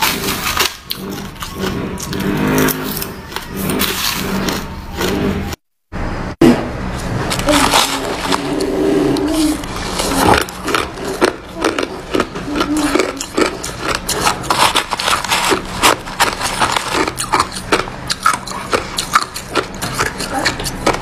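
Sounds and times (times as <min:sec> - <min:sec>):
spoon crunching through ice: 0:07.3 - 0:21.0.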